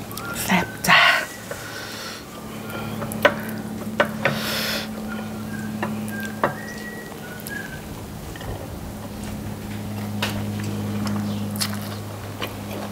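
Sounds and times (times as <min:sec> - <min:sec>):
thin whistle-like tones: 0:00.0 - 0:03.0, 0:04.8 - 0:08.0
low hum: 0:00.0 - 0:12.9
lip smacks and clicks: 0:06.0 - 0:06.4, 0:07.2 - 0:07.6, 0:11.0 - 0:12.9.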